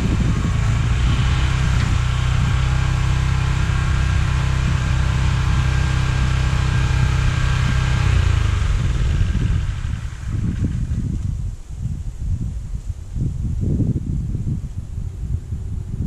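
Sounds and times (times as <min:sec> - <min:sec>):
small gasoline engine running: 0:00.0 - 0:11.6.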